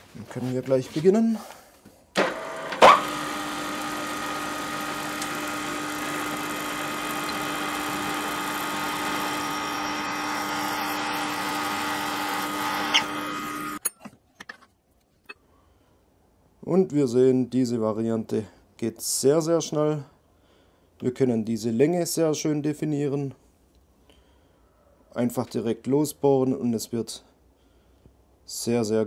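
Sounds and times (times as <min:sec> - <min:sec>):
drill press whining: 0:02.2 - 0:13.8.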